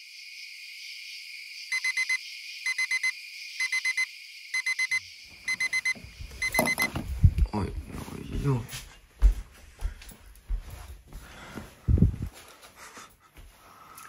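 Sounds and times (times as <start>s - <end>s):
alarm clock beeping: 1.7s - 7.0s
handling noise: 5.5s - 8.0s.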